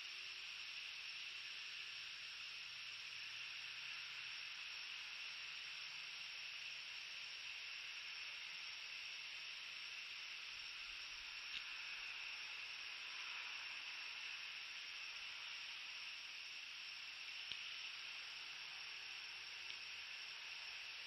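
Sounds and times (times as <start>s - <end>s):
steady high hiss: 0.0s - 21.0s
faint clicks: 11.5s - 11.7s, 17.4s - 17.9s, 19.6s - 19.9s.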